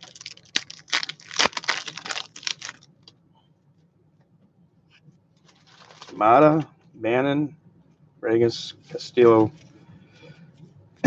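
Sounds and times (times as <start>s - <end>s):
card wrapper tearing and crinkling: 0.0s - 2.9s, 5.5s - 6.2s.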